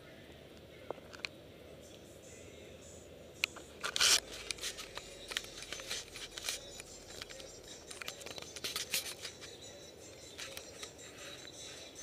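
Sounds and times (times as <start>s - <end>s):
handheld camera handling noise: 3.4s - 9.6s.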